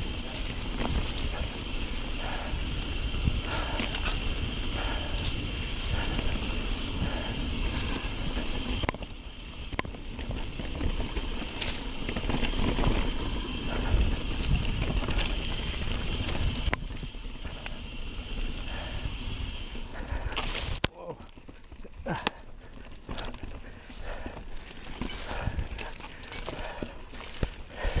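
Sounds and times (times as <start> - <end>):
bike rattling over bumps: 0.0 - 28.0
bike tyres rolling over dirt: 0.0 - 28.0.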